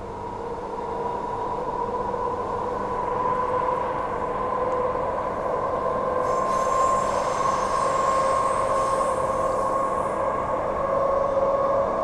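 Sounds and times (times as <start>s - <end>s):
electric train rumble and whine: 0.0s - 12.0s
faint high-pitched squeal: 5.9s - 12.0s.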